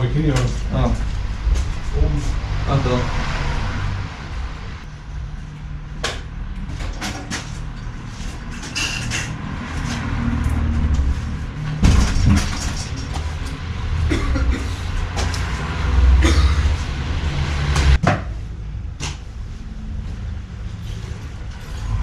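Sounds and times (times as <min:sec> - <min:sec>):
low rumble: 0:00.0 - 0:07.0.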